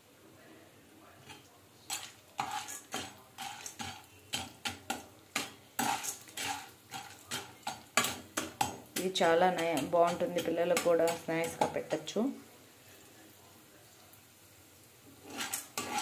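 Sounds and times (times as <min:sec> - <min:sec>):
metal spatula scraping a pan: 0:01.2 - 0:12.2, 0:15.1 - 0:16.0.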